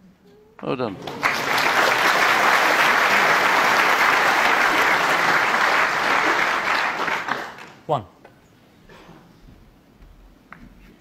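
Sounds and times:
audience clapping: 0.7s - 7.9s.

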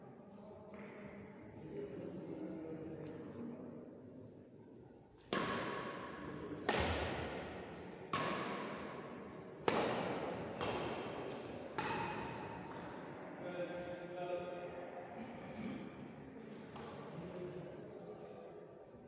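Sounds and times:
rackets hitting shuttlecock: 5.2s - 13.1s.

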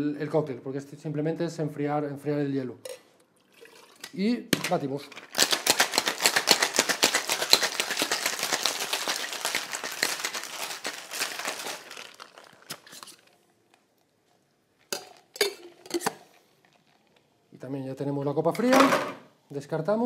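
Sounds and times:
ice rattling in cocktail shaker: 5.0s - 13.4s.

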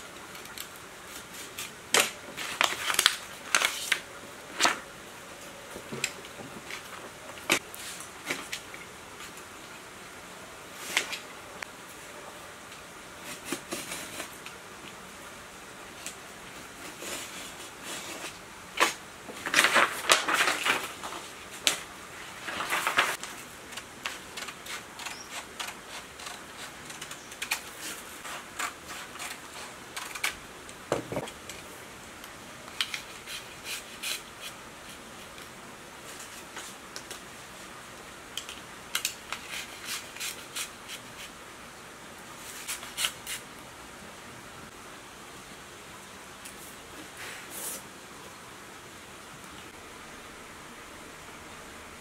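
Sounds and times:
crackling paper rustle: 0.2s - 4.8s, 16.0s - 30.4s.

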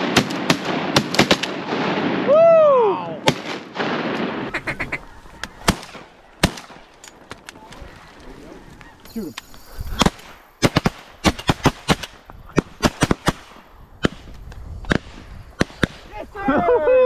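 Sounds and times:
goose honking: 4.5s - 5.7s.

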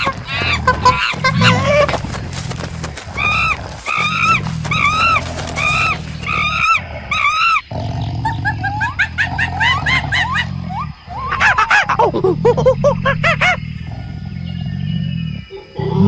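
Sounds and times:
gibbon calling: 3.2s - 13.7s.

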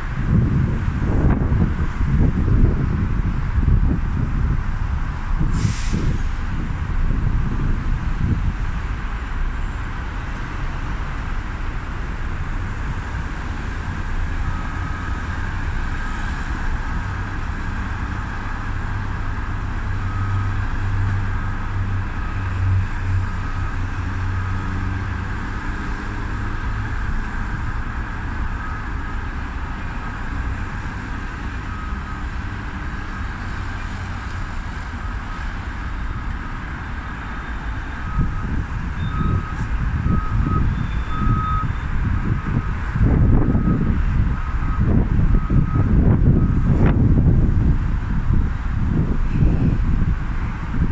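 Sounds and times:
road traffic: 0.0s - 50.9s
reversing alarm beeping: 14.3s - 17.1s, 19.9s - 21.1s, 27.8s - 30.6s, 31.4s - 33.3s, 37.2s - 46.7s.

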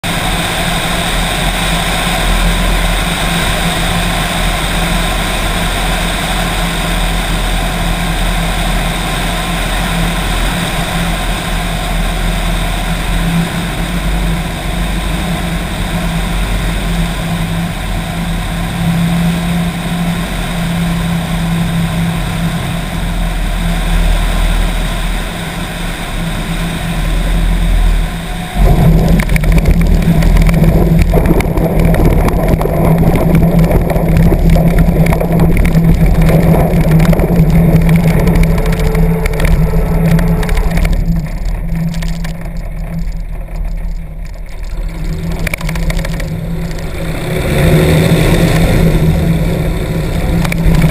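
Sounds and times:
airplane engine and propeller: 0.0s - 50.9s
wheels rolling on grass: 26.8s - 50.9s
wind rushing: 28.2s - 42.7s.

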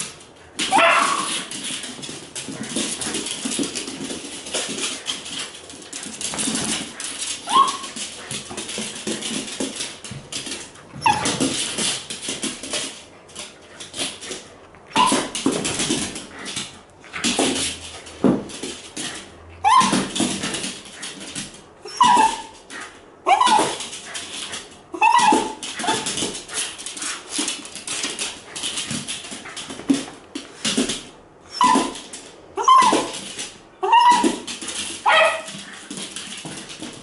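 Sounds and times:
dog barking: 0.7s - 1.3s, 35.0s - 35.5s
dog whining and yelping: 7.4s - 8.0s, 11.0s - 11.4s, 14.9s - 15.4s, 19.6s - 20.4s, 21.8s - 22.6s, 23.2s - 26.2s, 31.5s - 35.6s.

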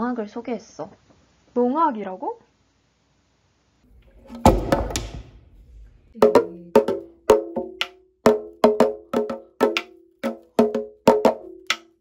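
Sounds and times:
hand drum beaten with stick: 6.2s - 12.0s.

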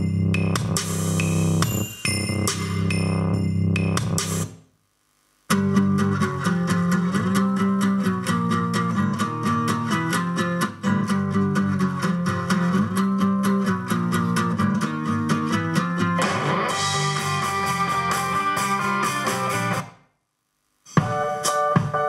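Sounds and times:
guitar music through loudspeaker: 5.5s - 19.8s.

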